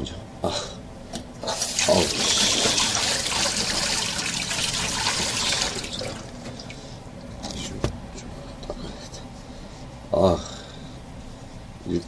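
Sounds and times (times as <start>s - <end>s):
water running from a tap: 1.6s - 6.3s.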